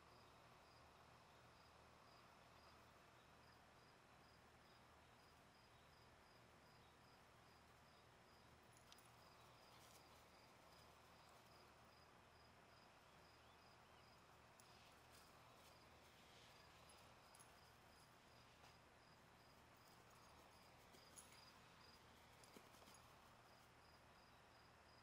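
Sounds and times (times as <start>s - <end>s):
cricket chirping: 0.0s - 25.0s
faint ticks: 8.6s - 11.8s, 14.2s - 18.8s, 19.7s - 23.7s.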